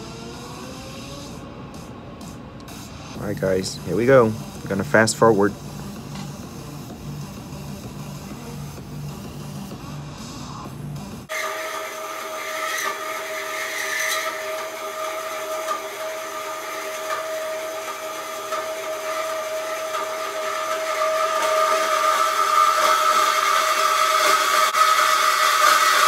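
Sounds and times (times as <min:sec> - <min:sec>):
steady machine whine: 0:00.0 - 0:26.0
hiss: 0:11.3 - 0:26.0.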